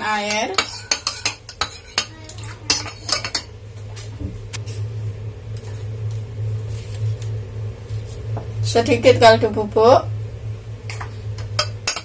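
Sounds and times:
metal spoon clinking ceramic bowl: 0.3s - 2.1s.

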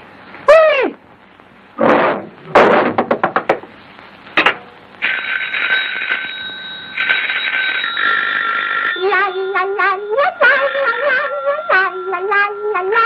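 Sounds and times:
sharp knock: 1.9s - 3.7s, 4.4s - 4.7s
cartoon telephone bell ringing: 5.0s - 12.0s.

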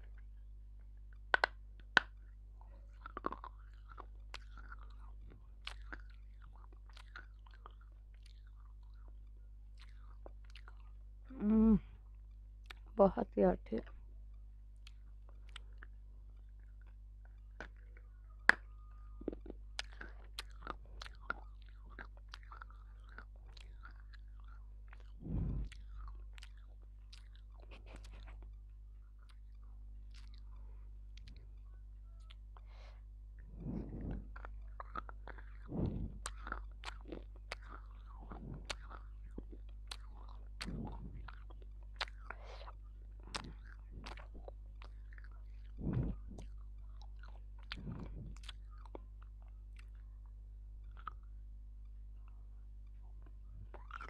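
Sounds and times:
low electrical hum: 0.0s - 54.0s
crunchy biting and chewing: 1.2s - 11.0s, 14.8s - 30.6s, 32.2s - 50.0s, 50.8s - 51.3s, 53.6s - 54.0s.

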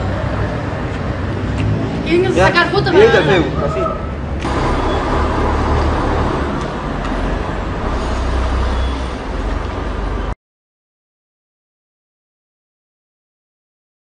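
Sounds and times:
low rumble of road traffic: 0.0s - 10.4s.

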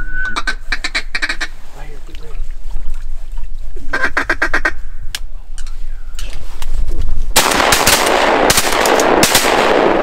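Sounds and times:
shotguns firing in a volley: 7.4s - 10.0s.

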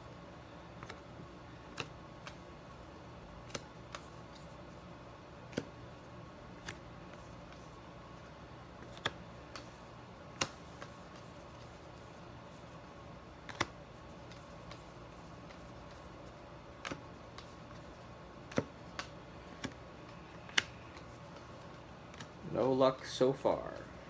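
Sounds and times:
faint room hum: 0.0s - 24.0s
cards clicking together: 1.7s - 2.4s, 3.4s - 4.4s, 8.8s - 9.7s, 10.4s - 11.2s, 13.4s - 14.8s, 18.4s - 19.8s, 20.4s - 21.4s.

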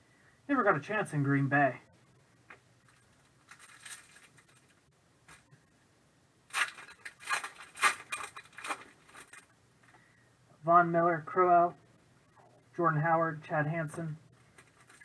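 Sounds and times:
foil wrapper crackling: 6.5s - 9.5s.

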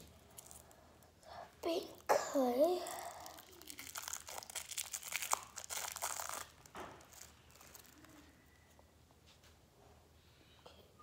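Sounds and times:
plastic wrapper crinkling and tearing: 0.0s - 8.5s.

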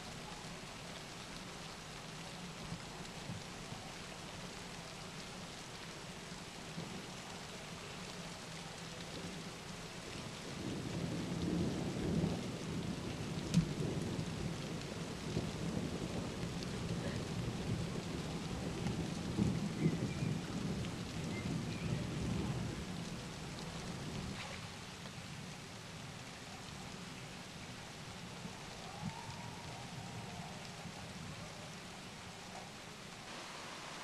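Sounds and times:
rain falling steadily: 0.0s - 34.0s
thunder rumbling: 10.4s - 25.0s, 28.2s - 32.0s.

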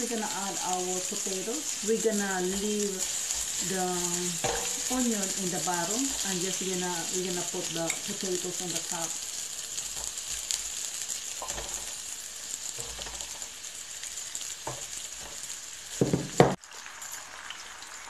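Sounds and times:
onions and potatoes sizzling in oil: 0.0s - 18.0s
wooden spatula scraping: 2.0s - 6.7s.

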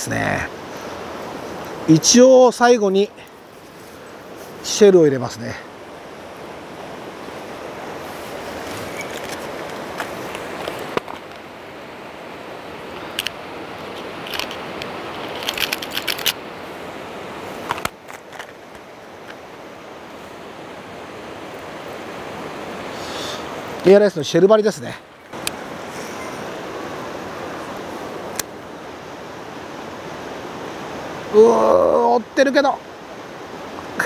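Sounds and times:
river flowing over rapids: 0.0s - 34.0s
fishing lure clicking and rattling: 15.2s - 16.4s.

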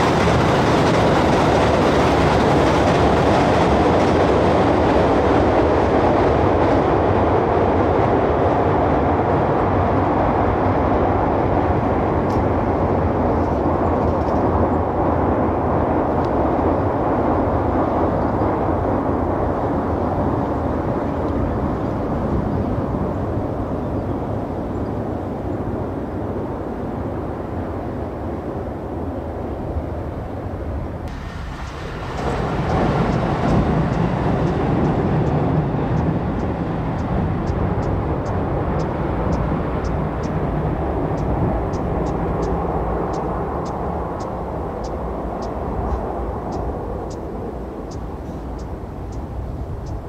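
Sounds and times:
train rumbling on rails: 0.0s - 50.0s
faint evenly spaced ticks: 31.4s - 50.0s.

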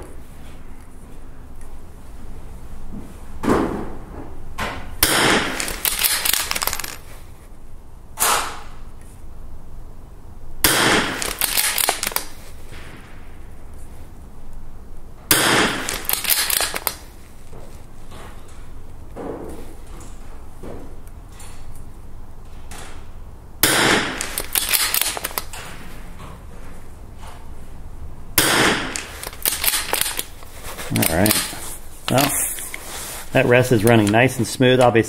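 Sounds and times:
rifle shots with echo: 5.0s - 7.0s, 10.6s - 12.1s, 15.3s - 16.7s, 23.6s - 25.1s, 28.4s - 30.2s
rifle bolt clicks and knocks: 5.1s - 7.1s, 11.2s - 12.4s, 15.8s - 17.1s, 24.1s - 25.7s, 28.8s - 32.8s.

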